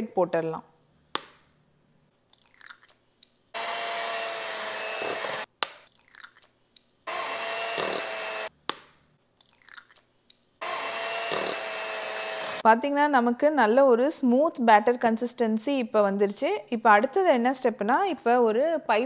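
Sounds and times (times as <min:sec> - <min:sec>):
electric beater motor running: 0:03.6 - 0:05.5, 0:07.1 - 0:08.5, 0:10.6 - 0:12.6.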